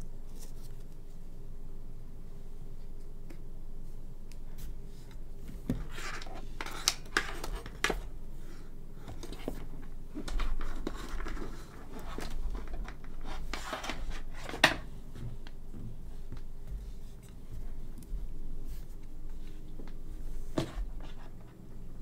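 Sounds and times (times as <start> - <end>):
cable scraping and rustling: 4.6 - 8.1, 9.1 - 15.6.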